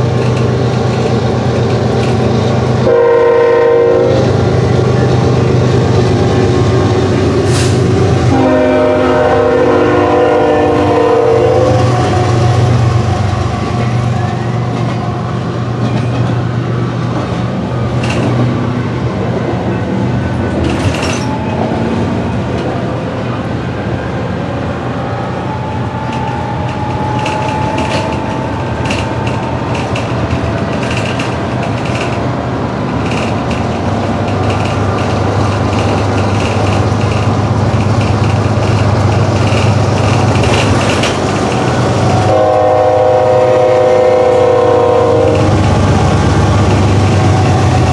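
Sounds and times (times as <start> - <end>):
bus engine drone: 0.0 - 9.7, 10.7 - 47.9
locomotive air horn: 2.8 - 4.5, 7.5 - 12.7, 42.1 - 45.7.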